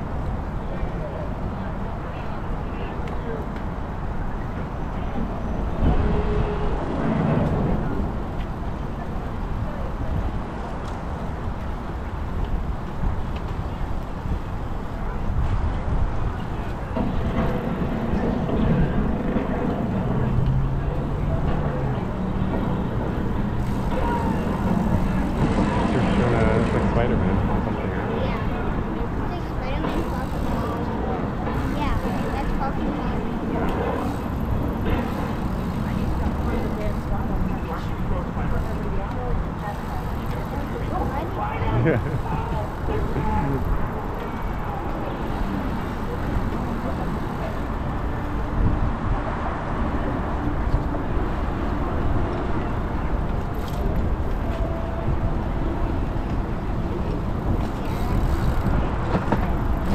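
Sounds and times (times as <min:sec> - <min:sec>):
road noise: 0:00.0 - 0:59.9
bicycle tyre hum: 0:05.5 - 0:59.9
faint chatter: 0:13.0 - 0:59.9.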